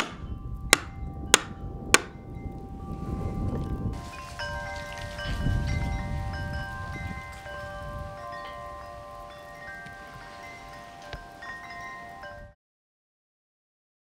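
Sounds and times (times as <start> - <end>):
low wind rumble on microphone: 0.0 - 12.6
metallic chimes ringing: 0.2 - 12.6.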